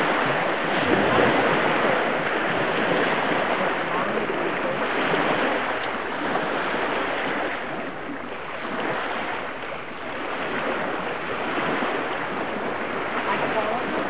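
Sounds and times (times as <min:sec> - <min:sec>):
wind rushing: 0:00.0 - 0:09.6
water rushing: 0:00.0 - 0:14.0.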